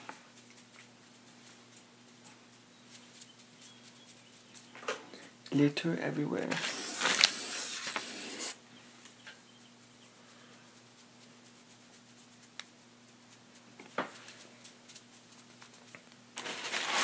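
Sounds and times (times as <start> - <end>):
low steady hum: 0.0 - 16.8
candy packets and paper rustling: 6.4 - 8.5, 14.2 - 17.0.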